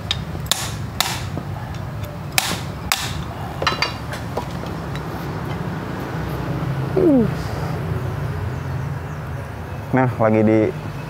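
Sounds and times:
hammer striking steel: 0.0 - 5.1
metallic clinks: 3.1 - 5.6.

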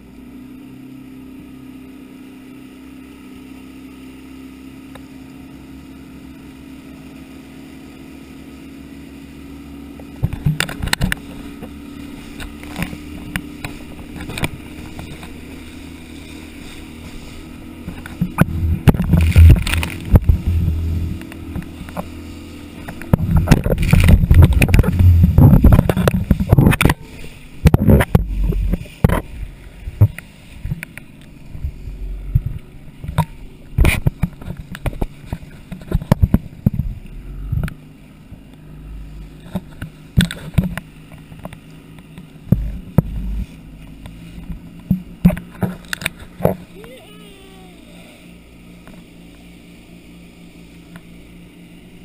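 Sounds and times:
outboard motor running: 0.0 - 52.0
water splashing against hull: 0.2 - 52.0
camera knocking and rubbing: 18.0 - 22.1, 23.0 - 27.0.

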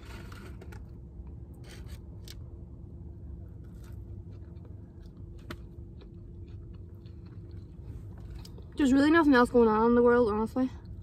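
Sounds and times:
person chewing fries: 0.0 - 8.8
low steady hum: 0.0 - 11.0.

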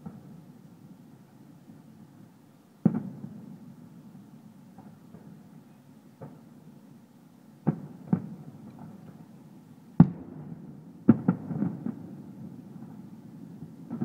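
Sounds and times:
distant firework booms: 2.8 - 3.4, 7.6 - 9.0, 10.0 - 13.0.

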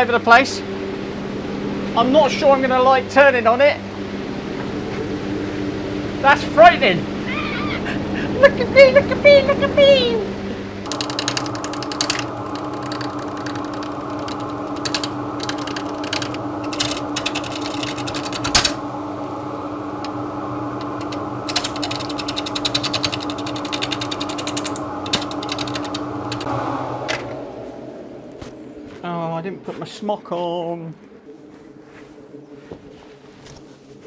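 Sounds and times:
turning tool chattering on wood: 10.9 - 18.4, 20.9 - 26.5
wood lathe running: 10.9 - 18.8, 20.0 - 26.8.

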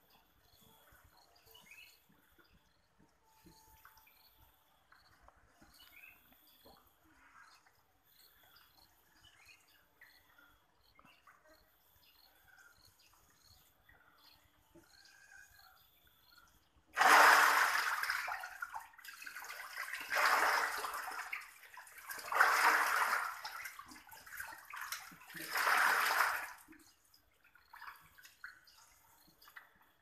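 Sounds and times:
water splashing and sloshing: 16.9 - 30.0.

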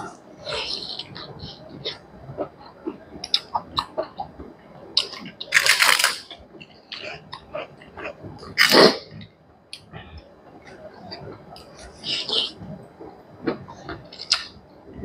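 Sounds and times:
chewing: 5.0 - 12.6.

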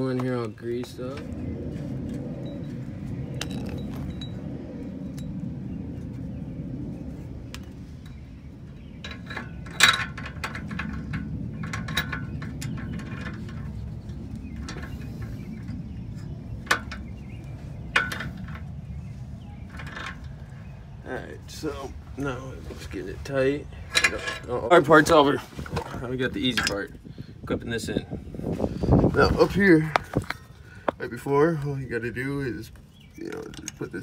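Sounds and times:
low background rumble: 0.0 - 34.0
metal tools clinking: 8.0 - 13.7, 19.7 - 20.4, 23.8 - 24.8, 26.5 - 26.9.

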